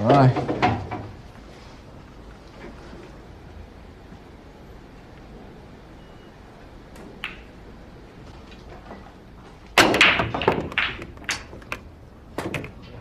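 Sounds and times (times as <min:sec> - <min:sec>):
pool balls clicking and knocking: 0:00.0 - 0:01.5, 0:06.8 - 0:13.0
cue ball cracking into pool balls: 0:06.9 - 0:07.6, 0:09.7 - 0:12.9.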